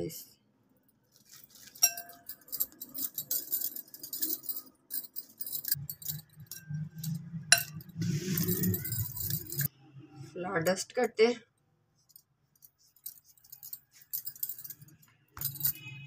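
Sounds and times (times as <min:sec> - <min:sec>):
bangle clinking against glass: 0:01.2 - 0:09.7, 0:12.6 - 0:16.0.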